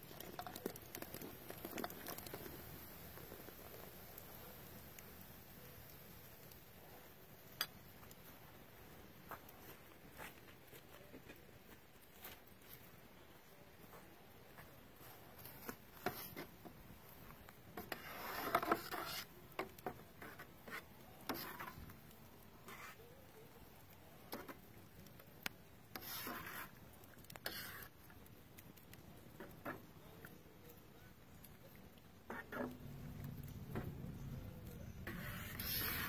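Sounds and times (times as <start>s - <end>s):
spatula scraping a stockpot: 0.1s - 2.6s, 15.0s - 23.3s, 24.2s - 28.2s, 29.3s - 30.0s, 32.2s - 36.0s.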